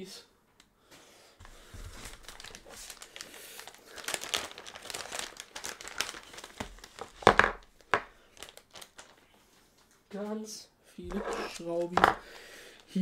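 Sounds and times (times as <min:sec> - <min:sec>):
plastic bags crinkling: 0:01.4 - 0:10.0.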